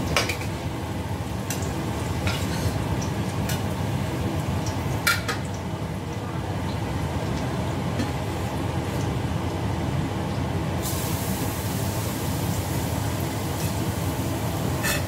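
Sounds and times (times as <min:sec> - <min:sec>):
garlic sizzling in hot oil: 0:00.0 - 0:05.7, 0:10.8 - 0:15.0
low stove rumble: 0:00.0 - 0:15.0.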